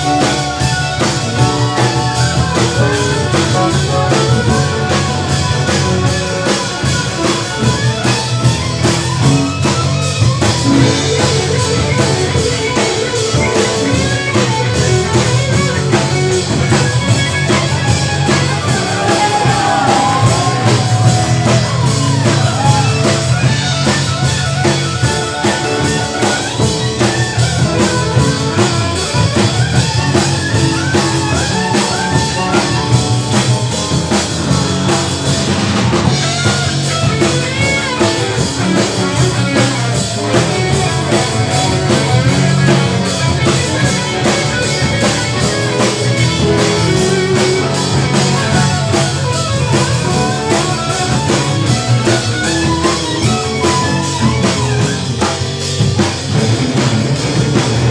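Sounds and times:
drum kit rock beat: 0.0s - 57.9s
electric bass: 0.0s - 57.9s
electric guitar: 0.0s - 57.9s
electric violin: 0.0s - 57.9s.

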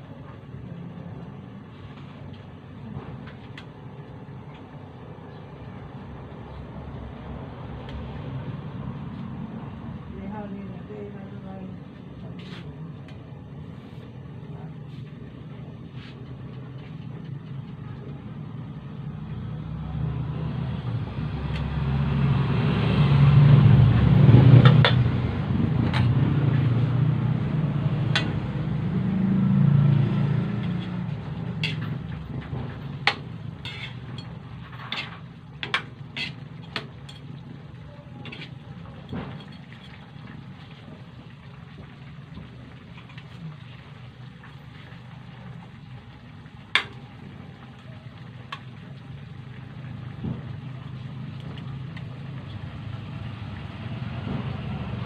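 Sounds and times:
spatula scraping a metal pan: 31.6s - 32.0s, 33.0s - 37.2s, 38.2s - 38.6s.

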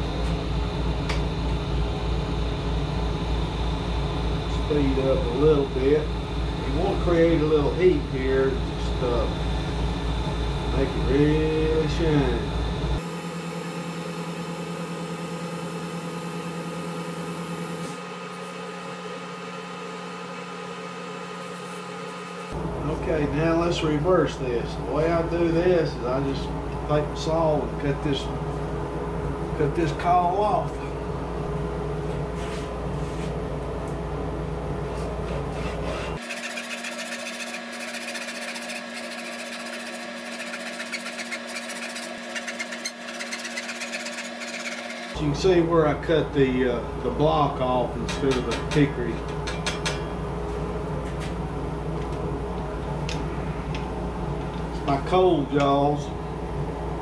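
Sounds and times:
wood lathe motor running: 10.7s - 22.6s, 35.6s - 45.2s
paper towel buffing spinning wood: 35.3s - 45.2s.

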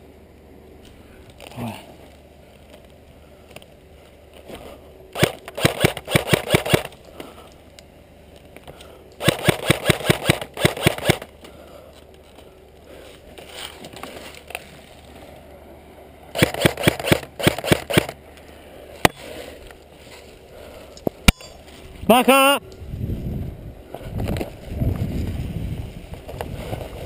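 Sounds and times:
airsoft rifle rapid shots: 5.2s - 6.9s, 9.2s - 11.3s, 16.3s - 18.2s.

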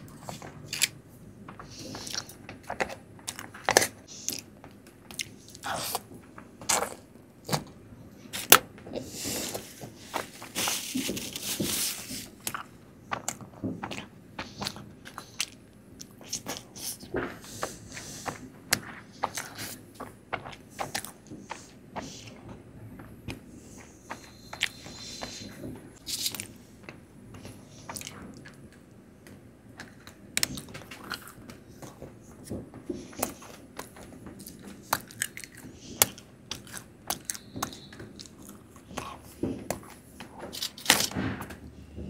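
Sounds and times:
chewing and biting: 34.4s - 39.2s.

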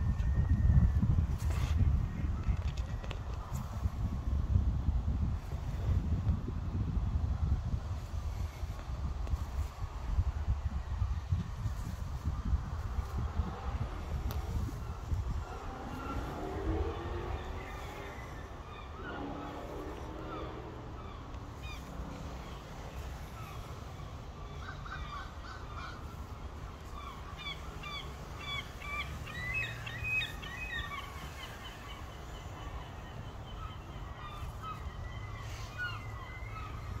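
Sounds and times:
low rumble: 12.1s - 24.4s
birds chirping: 13.3s - 37.0s.

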